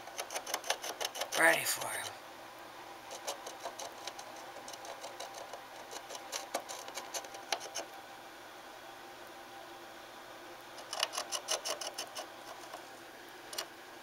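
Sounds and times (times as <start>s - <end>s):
animal scratching inside wall: 3.2s - 7.9s.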